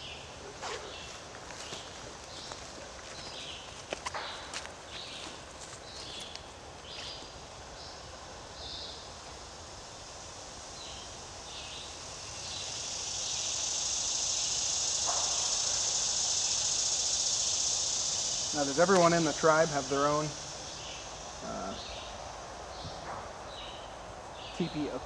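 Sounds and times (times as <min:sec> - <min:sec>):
cicada buzzing: 0:00.0 - 0:25.0.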